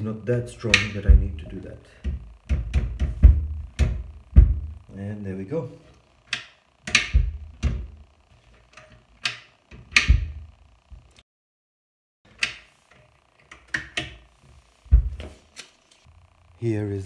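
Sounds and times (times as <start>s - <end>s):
cabinet door knocking and thudding: 1.1s - 1.5s, 2.1s - 4.8s, 6.9s - 7.9s, 14.9s - 15.2s.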